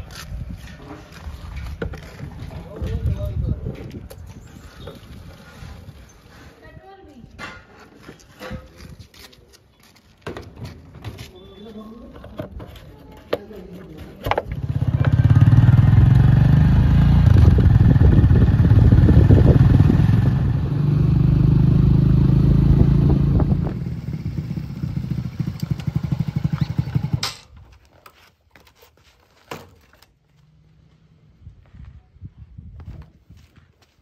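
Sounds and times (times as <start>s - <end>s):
motorcycle engine running: 14.5s - 27.3s.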